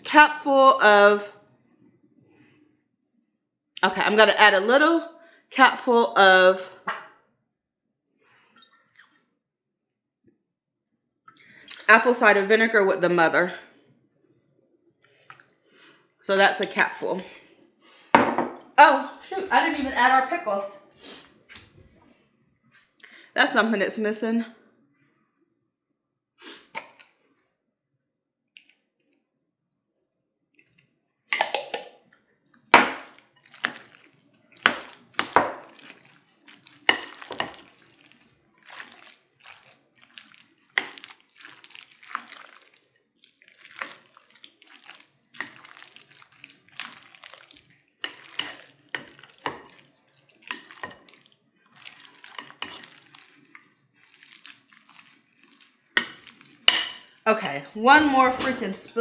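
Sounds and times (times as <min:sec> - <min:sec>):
wet scraping: 0:33.0 - 0:59.0.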